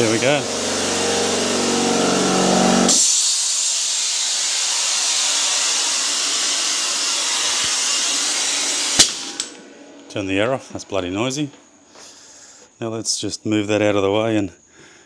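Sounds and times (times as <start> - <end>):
compressed air hissing: 0.0 - 9.5.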